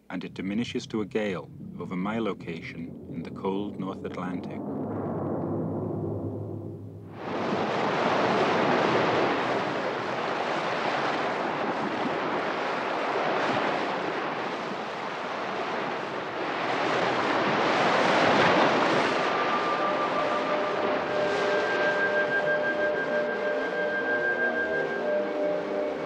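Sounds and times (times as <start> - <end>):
wind and seas rushing: 0.0 - 26.0
held musical tones: 19.6 - 26.0.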